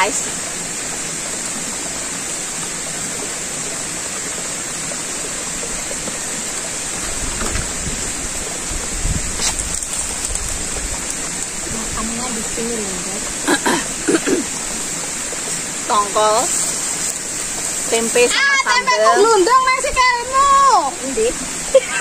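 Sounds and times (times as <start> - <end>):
stream running over rocks: 0.0 - 22.0
handling knocks and rustles: 7.0 - 8.1.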